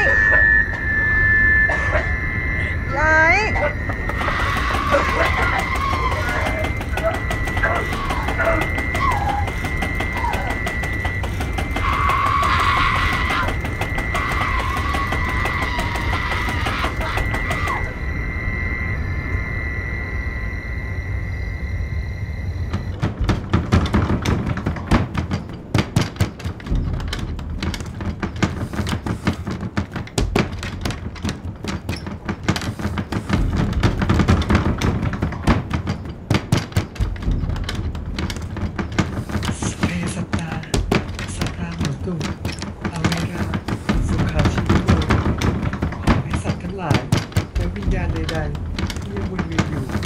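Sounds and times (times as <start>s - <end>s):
steady high tone: 0.0s - 23.4s
low rumble: 0.0s - 28.7s, 33.3s - 39.6s
clatter of knocks and clicks: 22.7s - 50.0s.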